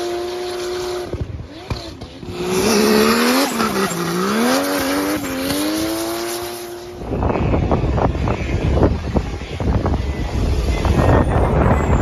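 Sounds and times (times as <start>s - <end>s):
car engine at high revs: 0.0s - 12.0s
wind rumbling on microphone: 6.8s - 12.0s.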